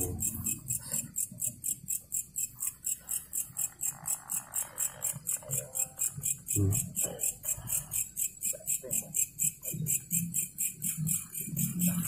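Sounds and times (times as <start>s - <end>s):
night insects chirping: 0.0s - 12.0s
faint voices murmuring: 5.1s - 12.0s.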